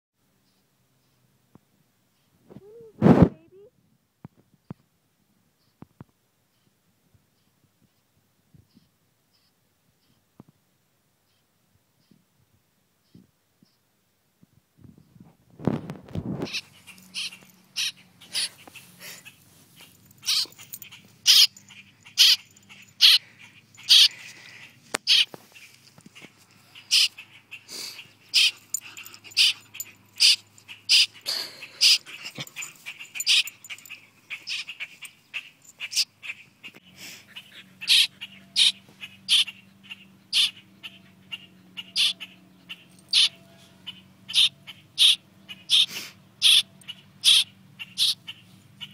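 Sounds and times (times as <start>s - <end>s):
fledgling bird chirping: 16.4s - 48.9s.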